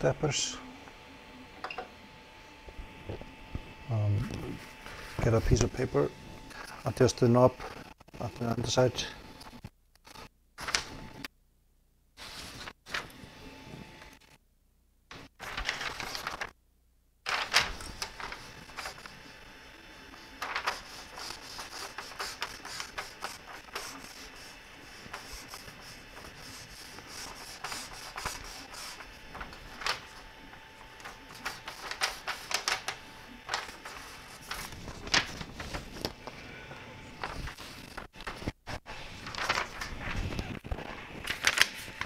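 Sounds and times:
paper rustling and scraping: 10.2 - 11.0, 12.2 - 14.0, 15.1 - 16.6, 17.3 - 42.0.

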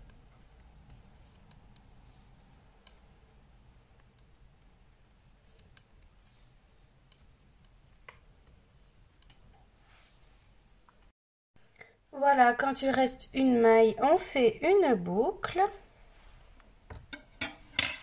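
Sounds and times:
knitting needles clicking: 0.0 - 8.6.

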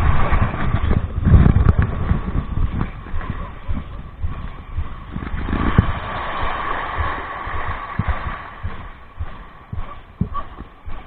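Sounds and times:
wind buffeting microphone: 0.0 - 11.0
small waves lapping: 4.8 - 11.0.

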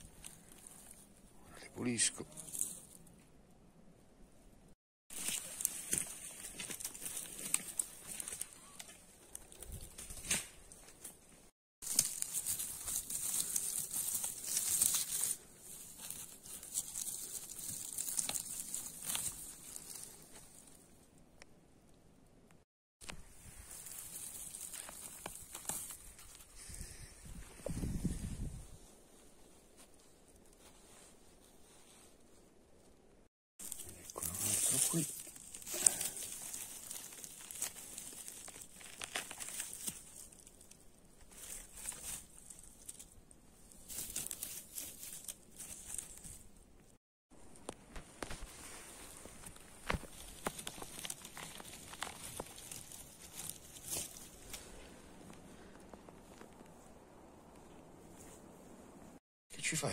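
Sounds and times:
dry grass and twigs rustling: 0.0 - 3.4, 5.1 - 21.6, 23.0 - 59.2.

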